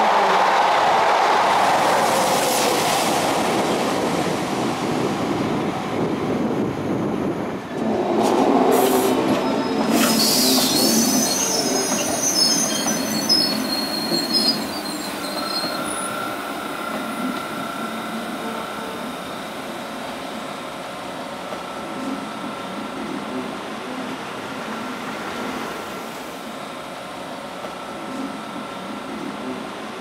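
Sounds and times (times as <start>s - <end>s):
electric train running on track: 0.0s - 30.0s
wheels squealing on rails: 8.7s - 19.6s.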